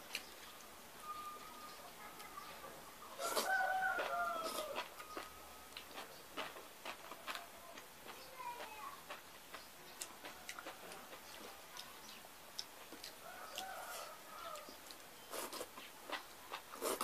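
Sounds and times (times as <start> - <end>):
rooster crowing: 3.2 - 5.7, 13.2 - 14.8
chewing and lip-smacking: 3.2 - 17.0.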